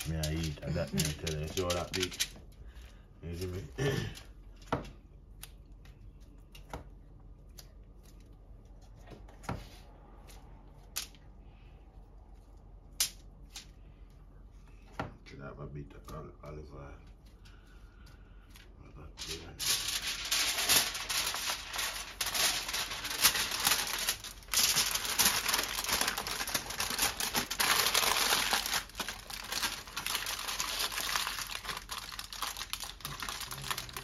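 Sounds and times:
aluminium foil crinkling: 0:00.0 - 0:04.6, 0:17.2 - 0:34.0.

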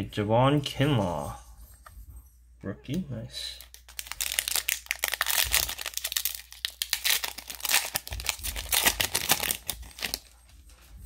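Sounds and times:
plastic wrapper crinkling: 0:03.6 - 0:10.4.

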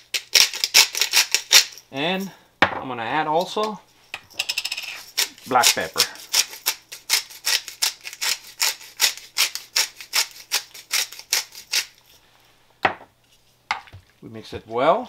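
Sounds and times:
pepper mill grinding: 0:00.0 - 0:01.8, 0:03.4 - 0:12.2.

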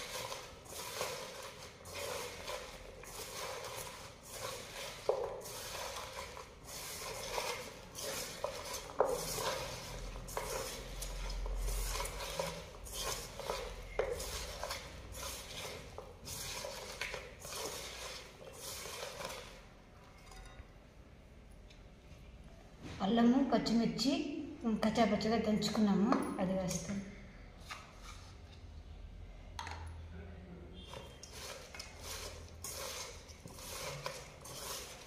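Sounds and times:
hands squishing onions: 0:00.0 - 0:19.7, 0:30.8 - 0:35.0.

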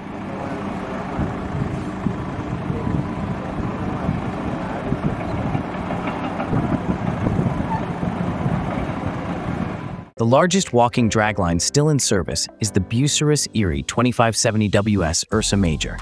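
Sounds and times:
machinery clanks and rattles: 0:00.0 - 0:10.0
bulldozer diesel engine running: 0:00.0 - 0:10.1.

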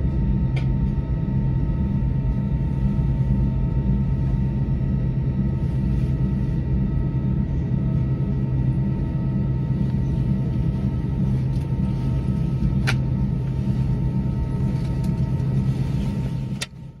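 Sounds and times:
jet engines idling: 0:00.0 - 0:17.0.

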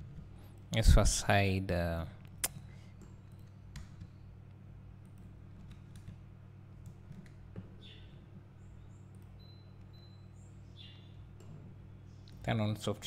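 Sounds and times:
steady low hum: 0:00.0 - 0:13.0
computer keys clicking: 0:02.4 - 0:04.2, 0:05.0 - 0:08.2, 0:08.8 - 0:10.2.

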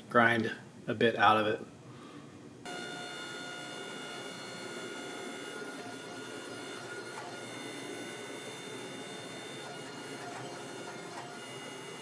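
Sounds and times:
hydraulic press whine and hum: 0:02.7 - 0:12.0.

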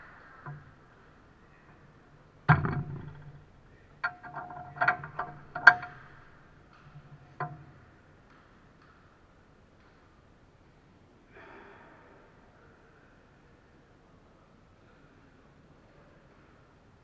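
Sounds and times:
sharp knocks and clunks: 0:00.0 - 0:09.0.

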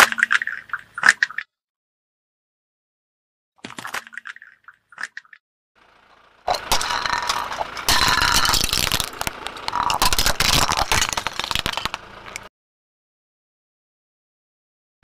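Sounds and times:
tyre crushing brittle objects: 0:06.5 - 0:12.5.

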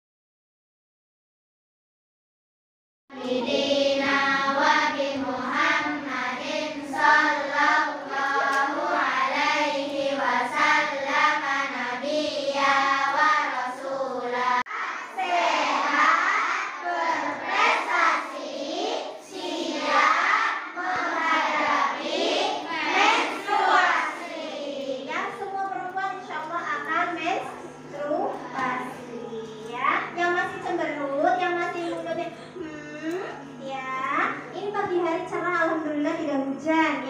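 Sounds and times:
girls singing in unison: 0:03.1 - 0:18.3, 0:19.1 - 0:24.7
group chant: 0:03.1 - 0:24.8.

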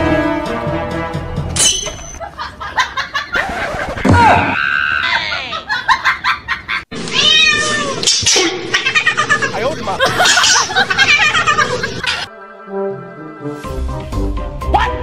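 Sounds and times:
kitten meowing: 0:07.1 - 0:08.1.

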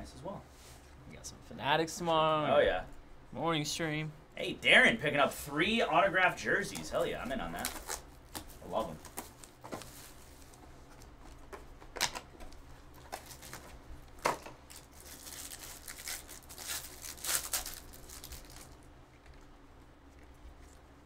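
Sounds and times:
foil wrapper tearing and crinkling: 0:13.0 - 0:18.8.

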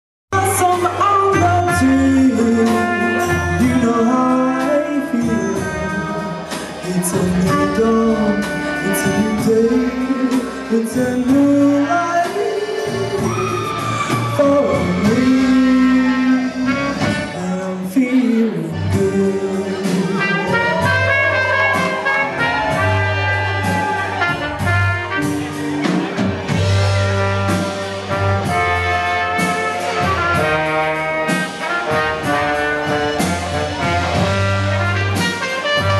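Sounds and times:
brass horns: 0:00.3 - 0:35.9
live band music: 0:00.3 - 0:35.9
person singing: 0:00.4 - 0:24.1.

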